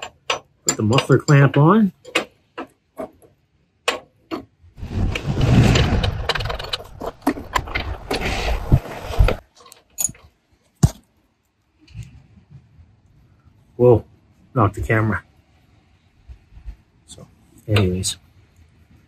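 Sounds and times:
metal rattling and clatter: 3.9s - 8.2s.

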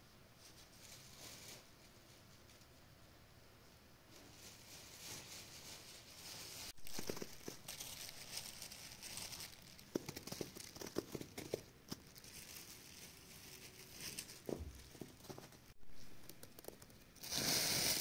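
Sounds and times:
rose petals rustling: 4.1s - 18.0s.

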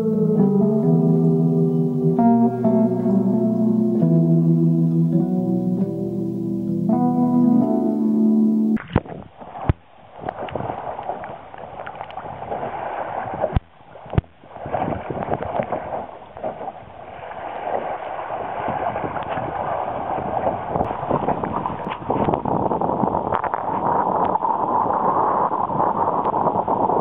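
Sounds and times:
water rushing along hull: 8.8s - 27.0s.

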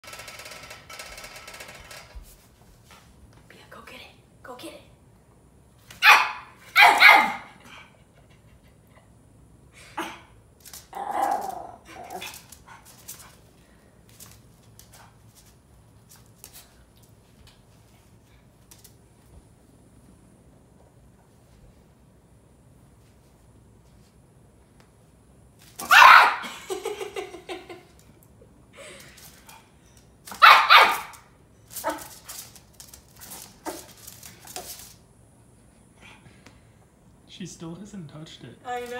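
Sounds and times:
small dog barking: 6.0s - 7.6s, 25.8s - 26.5s, 30.3s - 32.2s.

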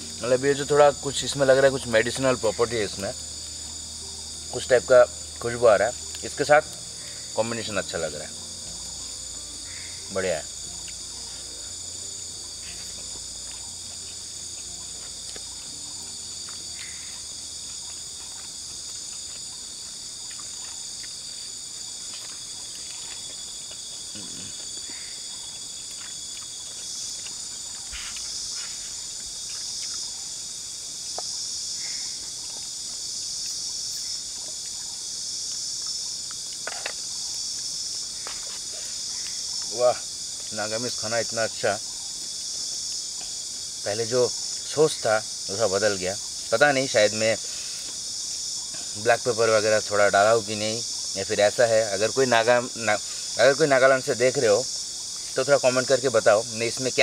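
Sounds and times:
insects chirring: 0.0s - 57.0s
clicks and rustles of eating: 17.7s - 28.4s, 29.1s - 30.1s, 35.5s - 39.7s.

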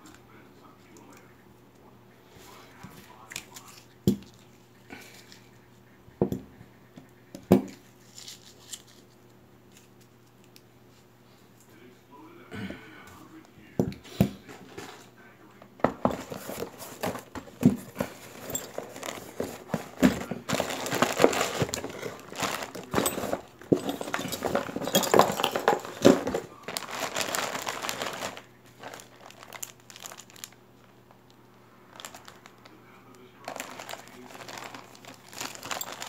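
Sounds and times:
plastic bags crinkling: 15.9s - 31.2s, 31.9s - 32.7s, 33.4s - 36.0s.

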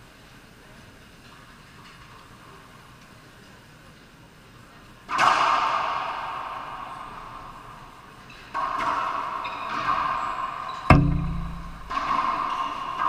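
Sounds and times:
heavy thud: 10.9s - 12.4s
racquetball cracks echoing: 10.9s - 13.0s.

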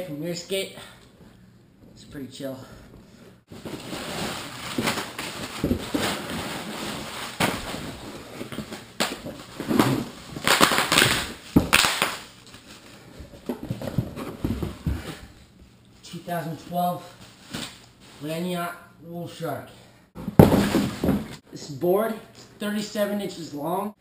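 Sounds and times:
paper and bubble wrap rustling: 3.5s - 13.2s.

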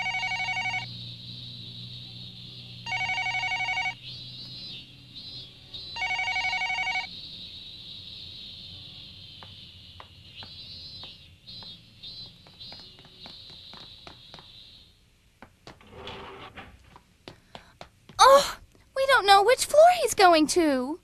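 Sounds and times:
payphone warbling electronic ring: 0.0s - 0.9s, 2.9s - 4.0s, 6.0s - 7.1s.

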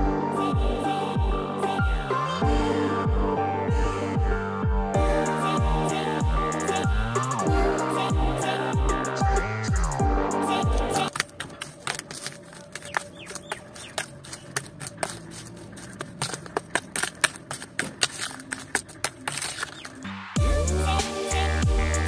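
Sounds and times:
trowel scraping mortar: 11.0s - 20.1s.

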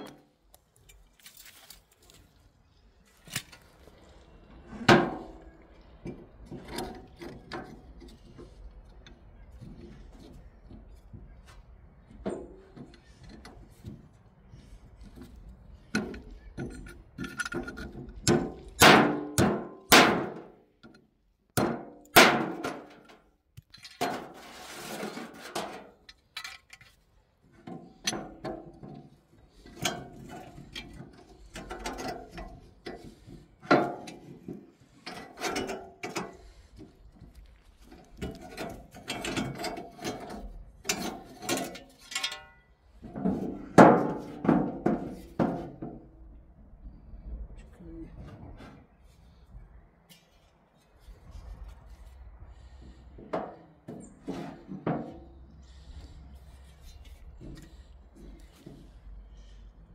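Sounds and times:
metal clinks and knocks: 15.9s - 19.5s, 38.1s - 45.8s.

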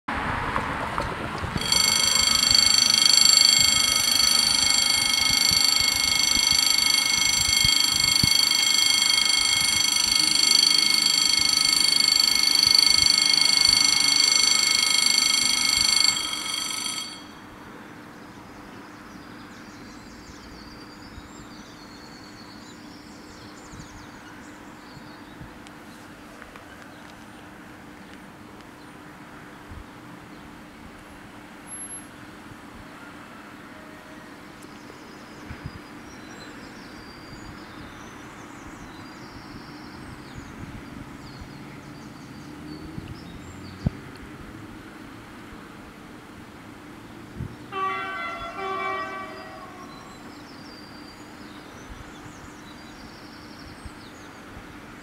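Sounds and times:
level-crossing bells ringing: 1.6s - 17.4s, 47.7s - 50.3s.

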